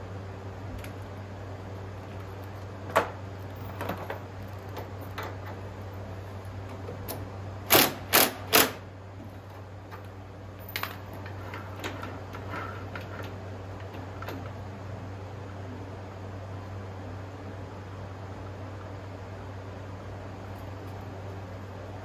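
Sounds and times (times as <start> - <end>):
sharp mechanical clicks and knocks: 7.1 - 8.8.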